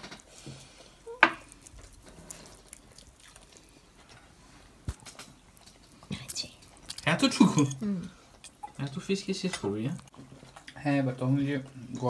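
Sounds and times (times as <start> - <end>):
faint scraping and ticks: 0.0 - 7.2.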